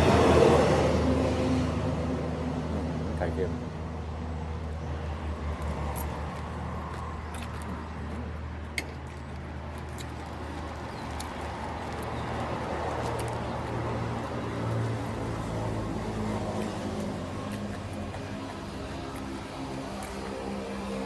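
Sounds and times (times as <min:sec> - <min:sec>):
man chewing food: 0:05.7 - 0:21.0.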